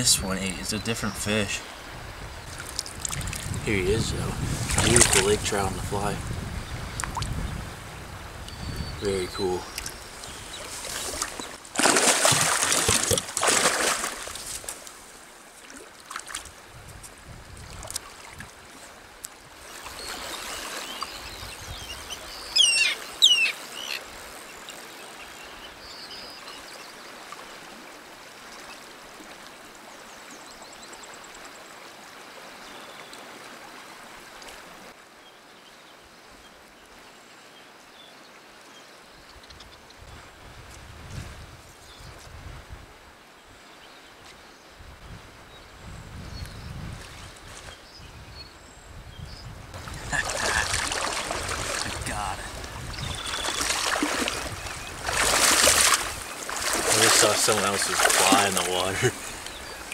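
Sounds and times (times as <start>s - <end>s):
trickle of flowing water: 2.4s - 3.6s, 7.0s - 7.4s, 9.7s - 21.4s, 22.5s - 35.2s, 49.8s - 59.9s
fish splashing in water: 9.8s - 14.9s, 49.8s - 59.9s
bird chirping: 20.0s - 24.0s, 52.0s - 55.0s.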